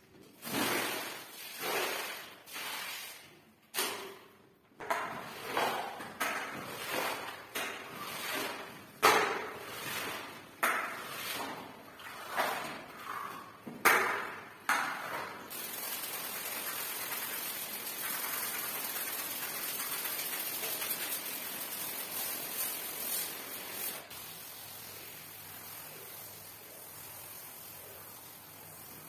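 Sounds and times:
water spraying on tiled floor: 0.4s - 3.3s, 15.5s - 29.0s
water pouring onto a rug: 0.5s - 3.3s, 15.5s - 24.0s.

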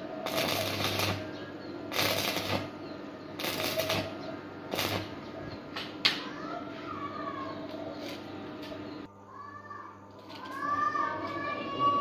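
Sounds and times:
welding arc crackling: 0.0s - 5.2s.

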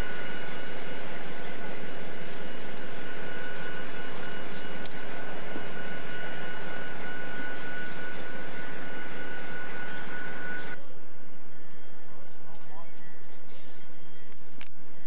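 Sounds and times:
locomotive engine droning: 0.0s - 15.0s.

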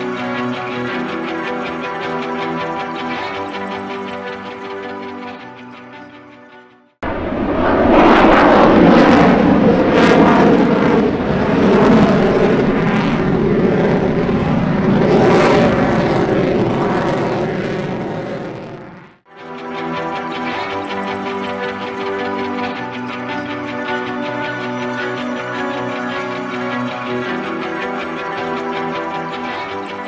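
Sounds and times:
jet engine flying past: 7.0s - 19.2s.

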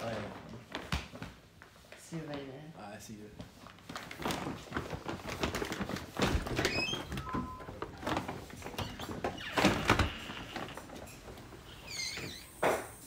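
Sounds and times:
doors opening and shutting: 6.2s - 13.0s
door squeaks: 6.4s - 8.0s, 8.6s - 13.0s.

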